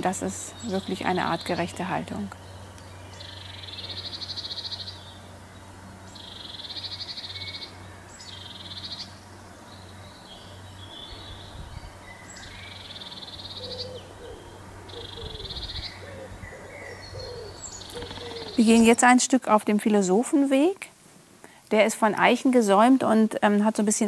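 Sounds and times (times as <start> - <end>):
steady low hum: 0.0 - 23.2
faint bird chirps: 9.8 - 19.0
bird trilling: 12.2 - 19.0.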